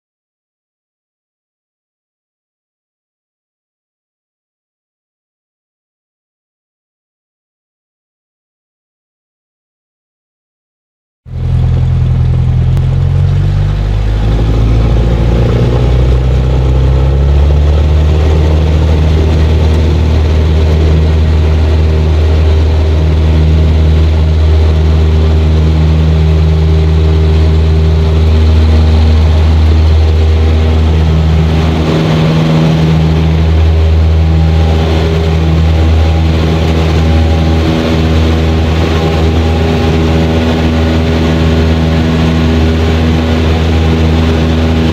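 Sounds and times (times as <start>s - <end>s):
aircraft engine and propeller drone: 11.3s - 44.9s.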